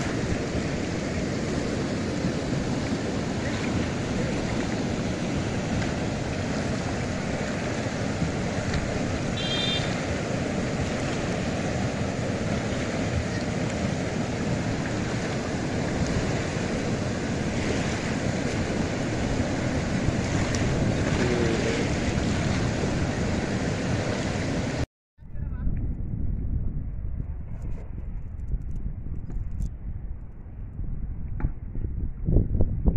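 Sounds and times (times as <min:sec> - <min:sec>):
river water rushing through sluice: 0:00.0 - 0:24.8
wind buffeting microphone: 0:00.0 - 0:32.9.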